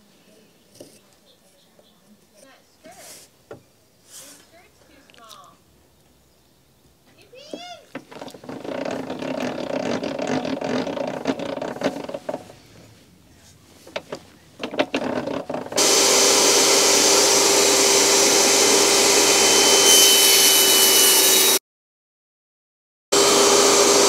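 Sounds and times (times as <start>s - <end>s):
wood sliding on metal table: 7.9s - 13.0s
table saw running: 8.4s - 12.4s, 14.6s - 21.6s, 23.2s - 24.0s
board cut by saw blade: 8.5s - 12.2s, 15.1s - 21.6s, 23.2s - 24.0s.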